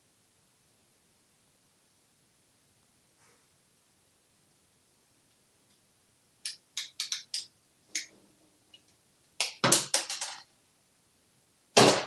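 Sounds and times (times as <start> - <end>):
parrot beak clicking: 6.4 - 8.1.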